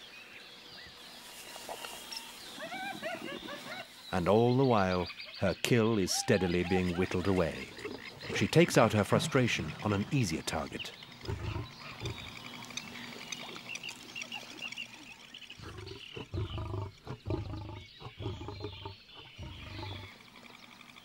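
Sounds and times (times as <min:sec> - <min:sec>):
frogs trilling: 0:05.1 - 0:21.0
lioness growling: 0:06.6 - 0:10.2, 0:11.2 - 0:12.5, 0:15.6 - 0:20.2.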